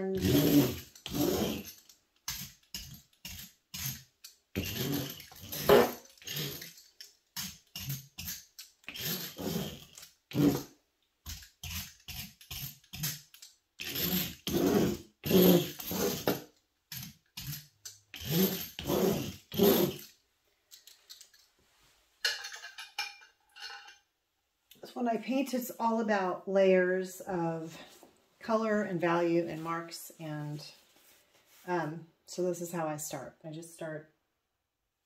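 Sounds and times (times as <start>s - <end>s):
tool scratching wet paint on paper: 0.1s - 4.0s, 13.8s - 16.4s.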